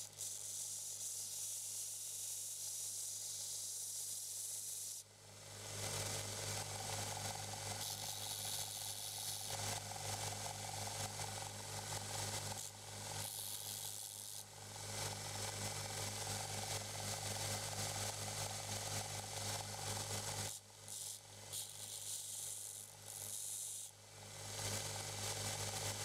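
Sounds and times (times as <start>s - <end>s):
belt grinder motor hum: 12.4s - 14.5s.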